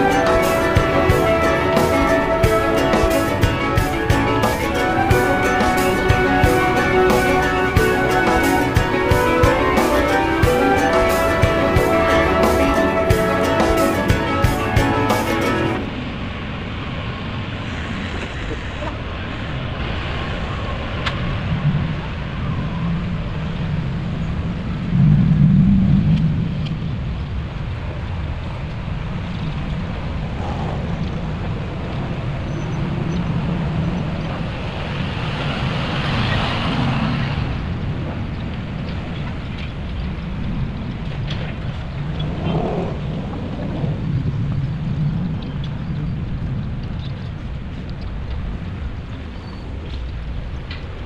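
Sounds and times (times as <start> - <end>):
heavy trucks and machinery rumbling: 0.0 - 20.6.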